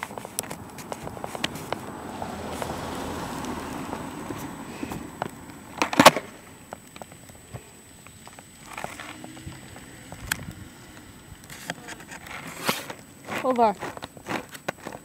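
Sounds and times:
skateboard wheels rolling on asphalt: 0:00.0 - 0:15.0
faint ticks: 0:06.7 - 0:12.3.

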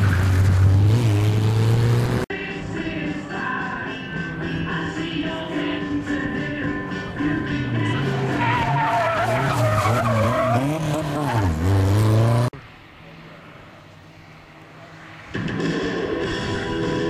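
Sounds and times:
rally car engine revving: 0:00.0 - 0:02.3, 0:06.6 - 0:12.6
tyres squealing: 0:07.8 - 0:11.9.

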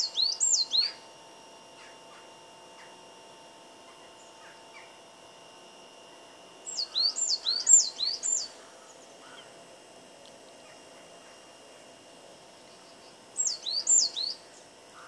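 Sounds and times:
faint bird chirps: 0:00.0 - 0:01.0, 0:06.6 - 0:09.6, 0:12.6 - 0:15.0
songbird whistling phrase: 0:00.0 - 0:01.0, 0:06.7 - 0:08.5, 0:13.4 - 0:14.4.

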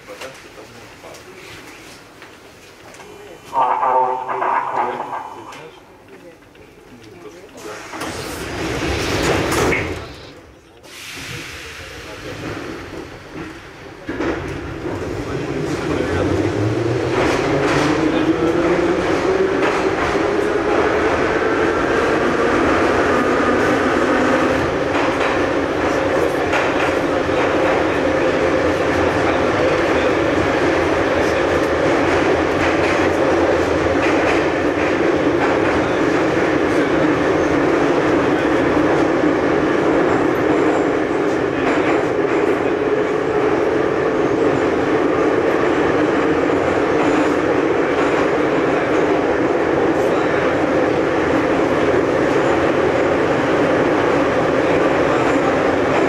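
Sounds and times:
train wheels rumbling on rails: 0:00.0 - 0:56.0
clacks over rail joints: 0:24.9 - 0:28.0.

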